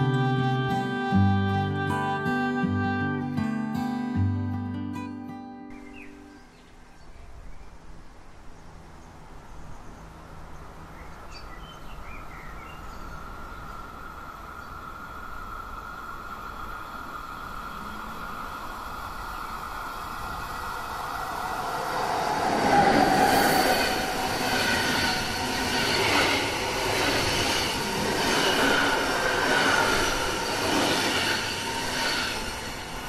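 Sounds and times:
electric train passing: 13.2s - 33.0s.

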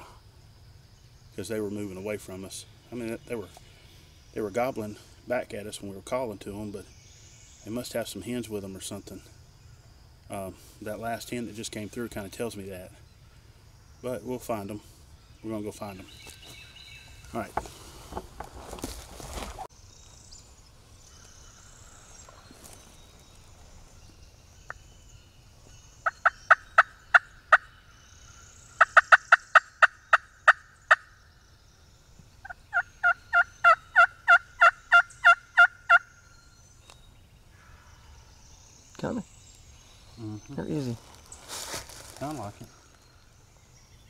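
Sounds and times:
turkey yelping: 32.4s - 36.0s.

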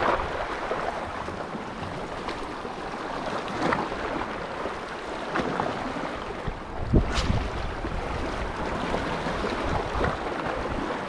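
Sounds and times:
wind on microphone: 0.0s - 2.0s, 6.0s - 11.0s
seawater washing and lapping: 0.0s - 11.0s.

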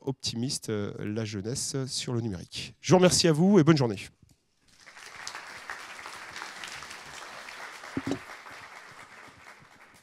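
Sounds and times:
audience applauding: 4.8s - 10.0s.

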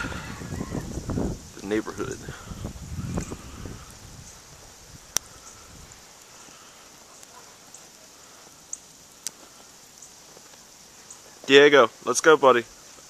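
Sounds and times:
soft steady hiss: 0.0s - 13.0s.

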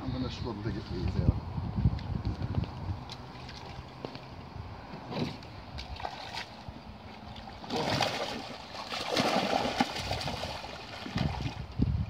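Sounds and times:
water splashing and sloshing: 2.5s - 12.0s.

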